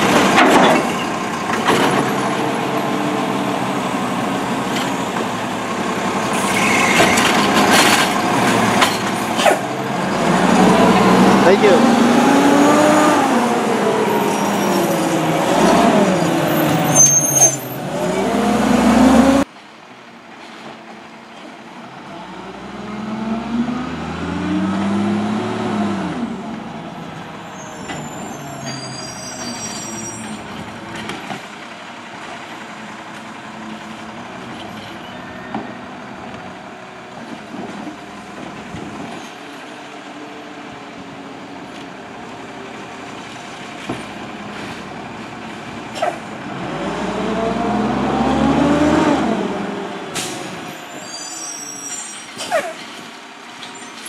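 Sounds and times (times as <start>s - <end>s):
garbage truck engine revving: 0.0s - 19.5s, 22.1s - 28.7s, 44.1s - 50.7s
high squeals: 6.3s - 7.2s, 14.0s - 18.2s, 27.4s - 30.4s, 50.6s - 52.8s.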